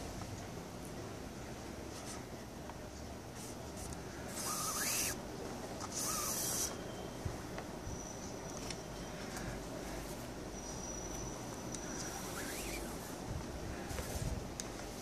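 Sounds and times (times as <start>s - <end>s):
cord sliding through weave: 3.3s - 5.2s, 5.8s - 6.8s, 11.7s - 15.0s
squeak of cord on cord: 4.3s - 5.2s, 5.8s - 7.2s, 10.6s - 13.1s.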